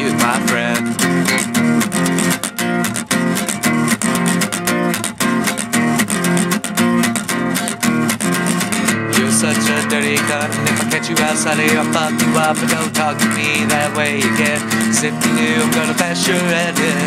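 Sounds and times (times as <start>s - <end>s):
acoustic guitar strumming chords: 0.0s - 17.0s.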